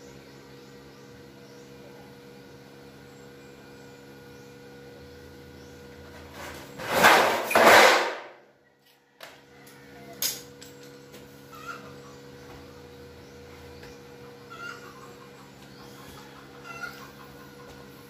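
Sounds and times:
metal sheet scraping on concrete: 0:06.3 - 0:08.3.

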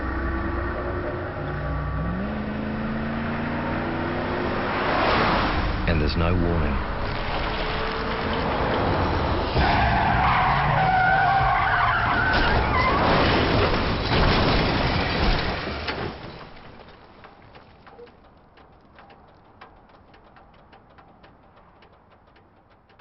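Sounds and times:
car crashing and rolling: 0:06.8 - 0:18.0
car tyres squealing: 0:07.7 - 0:14.1.

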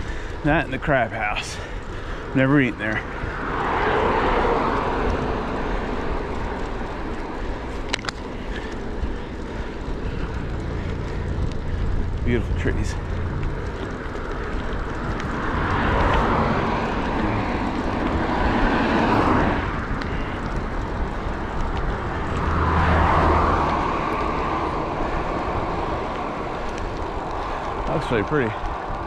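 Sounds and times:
cars passing: 0:00.0 - 0:29.0
low wind rumble: 0:00.0 - 0:29.0.

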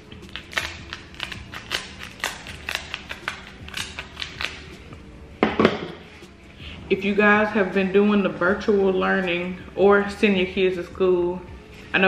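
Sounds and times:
shell cracking: 0:00.2 - 0:04.6.

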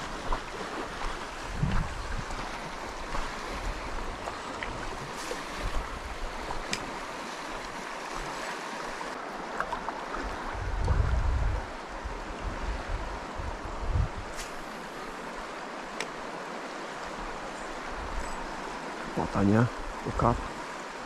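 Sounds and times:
wind buffeting microphone: 0:00.0 - 0:06.9, 0:10.2 - 0:14.7
river water rushing: 0:00.0 - 0:21.0.

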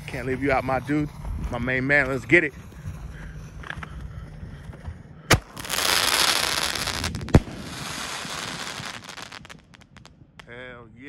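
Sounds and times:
firework bang: 0:05.3 - 0:10.1
firework rushing hiss: 0:05.3 - 0:10.1.

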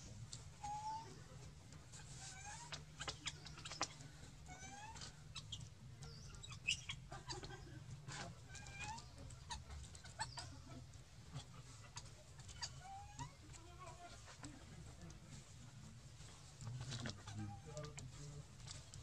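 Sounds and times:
animals squeaky chirps: 0:01.9 - 0:07.6, 0:08.5 - 0:10.6, 0:11.9 - 0:13.4.

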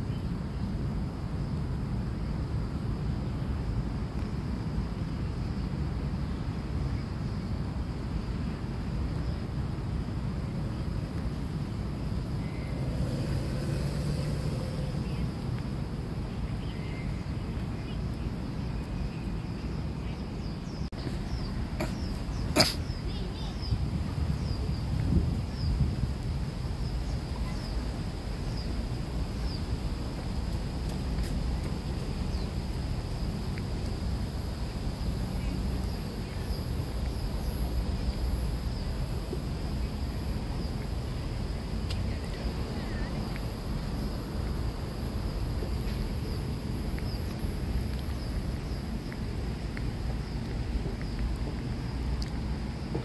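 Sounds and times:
insects droning: 0:00.0 - 0:53.0
steady low rumble: 0:00.0 - 0:53.0
low rumble: 0:11.1 - 0:16.5.

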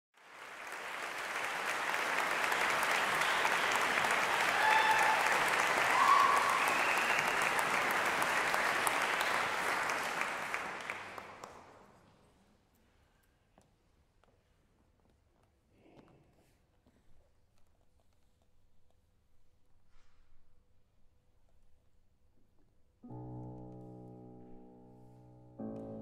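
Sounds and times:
audience applauding: 0:00.1 - 0:12.0.

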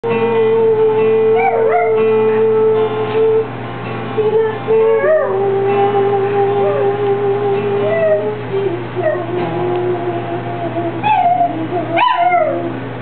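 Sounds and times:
guitar music: 0:00.0 - 0:13.0
small dog howling: 0:01.3 - 0:02.9, 0:04.8 - 0:05.5, 0:07.8 - 0:08.4, 0:09.0 - 0:09.7, 0:11.0 - 0:12.8
man singing long notes: 0:04.2 - 0:12.8.

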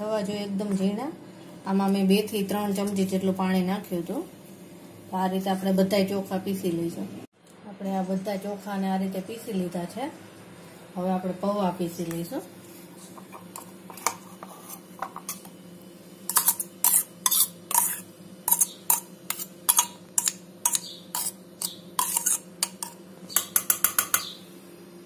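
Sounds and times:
low steady hum: 0:00.0 - 0:25.0
utensils scraping steel jar: 0:16.3 - 0:23.7.

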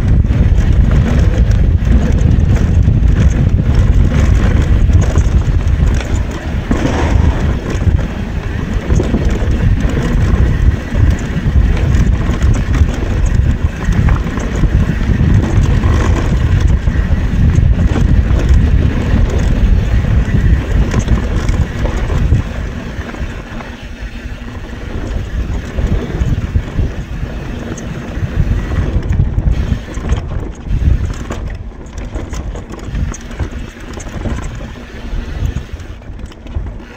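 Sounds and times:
mountain bike knocking and rattling: 0:00.0 - 0:36.9
wind rushing over microphone: 0:00.0 - 0:36.9
tyre roar: 0:06.7 - 0:08.0.

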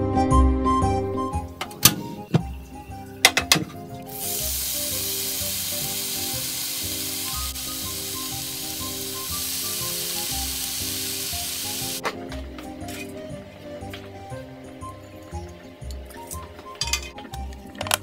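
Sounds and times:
bacon sizzling on a grill pan: 0:04.1 - 0:12.0.

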